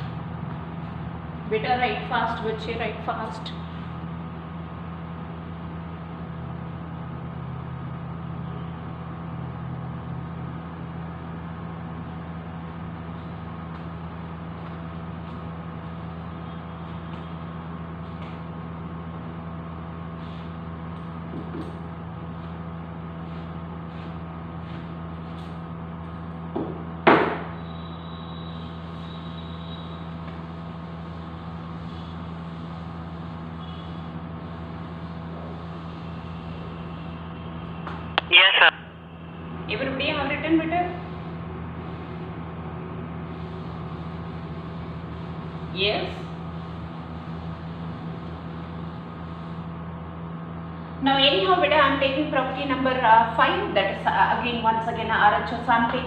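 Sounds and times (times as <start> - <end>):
low mechanical hum: 0.0 - 56.0
sharp knock: 27.1 - 27.5.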